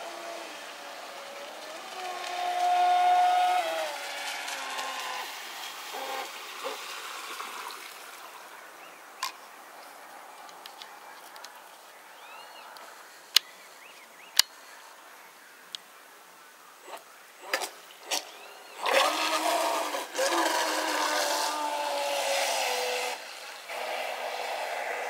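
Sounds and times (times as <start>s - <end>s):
model boat motor whining: 0.0s - 6.8s, 17.4s - 25.0s
water hissing: 0.0s - 8.6s, 16.8s - 25.0s.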